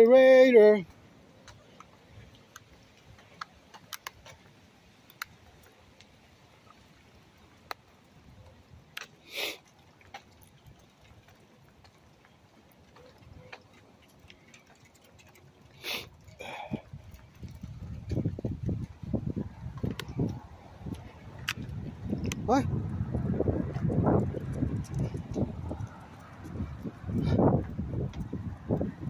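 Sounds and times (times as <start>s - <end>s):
dog claws clicking on concrete: 2.5s - 4.5s, 12.8s - 16.2s, 23.7s - 27.0s.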